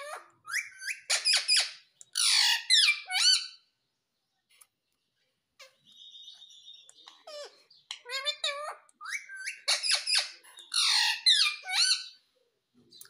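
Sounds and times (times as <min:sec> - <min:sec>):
parakeet squawking: 0:00.0 - 0:03.7, 0:05.6 - 0:12.2.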